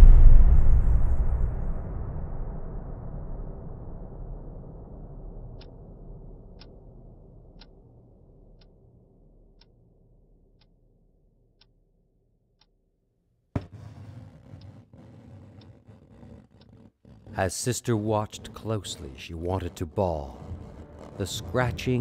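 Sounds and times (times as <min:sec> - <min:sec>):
rumbling noise: 0:13.9 - 0:22.0
wall clock ticking: 0:14.5 - 0:22.0
low drone: 0:17.1 - 0:22.0.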